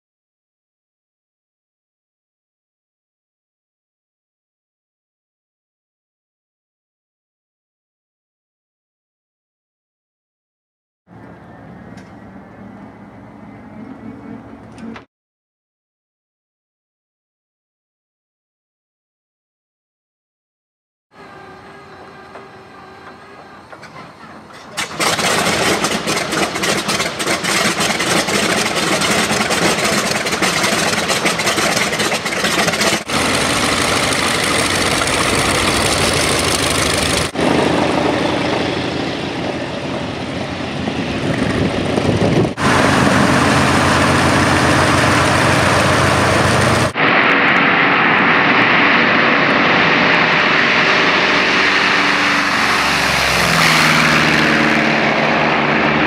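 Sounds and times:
radial aircraft engine running: 11.1 - 15.1, 21.2 - 56.0.

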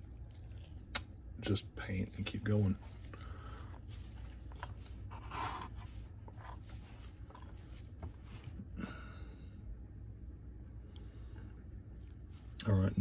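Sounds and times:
steady low hum: 0.0 - 13.0
paintbrush scratching strokes: 1.9 - 8.6.

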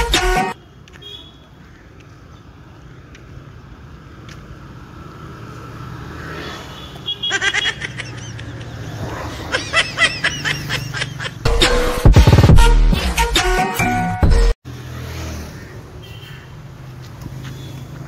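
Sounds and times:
loud music: 0.0 - 0.6, 11.5 - 14.6.

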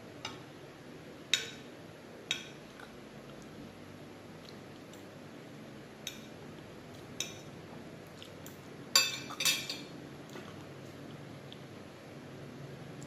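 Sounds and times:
metal fork clinking on plate: 9.0 - 9.9.

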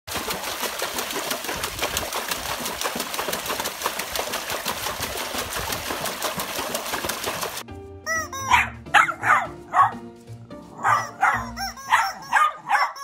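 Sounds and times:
dog splashing in water tub: 0.1 - 7.7.

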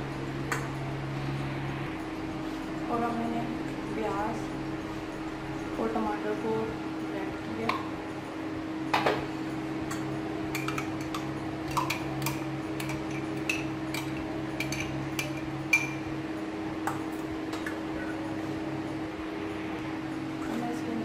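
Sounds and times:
low hum: 0.0 - 21.0
spoon tapping and scraping bowl: 9.9 - 16.0.

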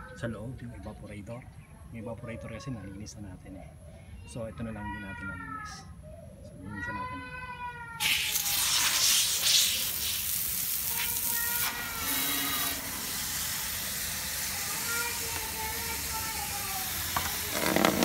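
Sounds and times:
garden hose spraying water: 8.0 - 18.0.

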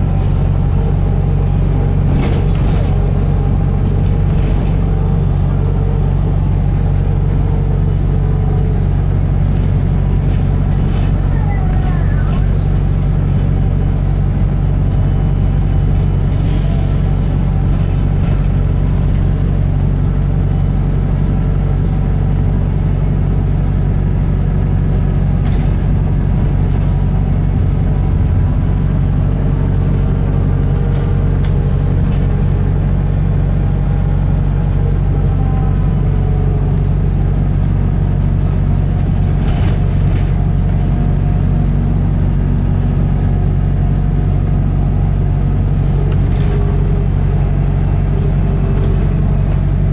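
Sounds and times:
bus drivetrain low drone: 0.0 - 49.9.

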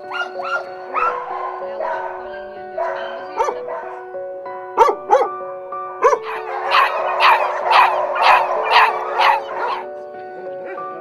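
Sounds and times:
dogs barking: 0.0 - 4.1, 4.8 - 5.4, 6.0 - 10.0
music with sustained notes: 0.0 - 11.0.

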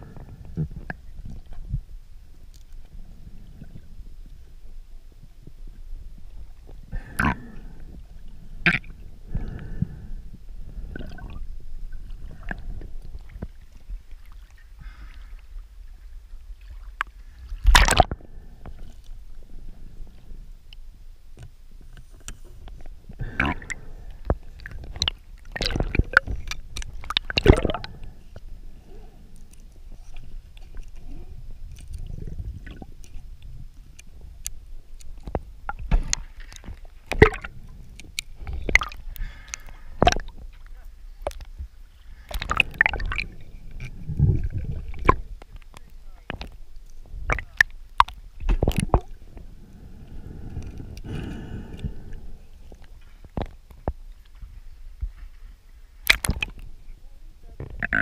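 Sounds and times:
water sloshing and gurgling: 0.0 - 56.9, 57.6 - 58.0
sharp knocks and splashes: 17.6 - 18.2, 25.0 - 27.9, 35.7 - 37.5, 38.6 - 39.0, 39.6 - 40.4, 42.3 - 43.3, 56.0 - 56.6.

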